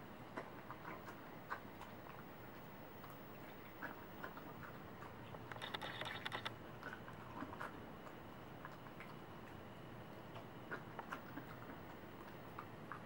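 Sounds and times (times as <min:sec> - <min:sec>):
dog licking and chewing: 0:00.7 - 0:09.6.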